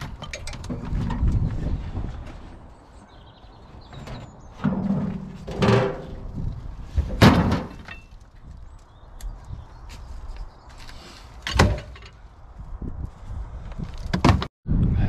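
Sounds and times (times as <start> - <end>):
wheelbarrow knocking and clanging: 0.0 - 1.5, 3.9 - 8.2, 11.4 - 12.2.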